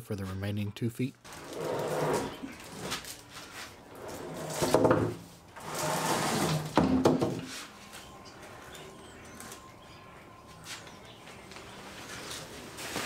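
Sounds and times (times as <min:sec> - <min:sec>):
wooden block scraping slide: 0:05.6 - 0:06.8.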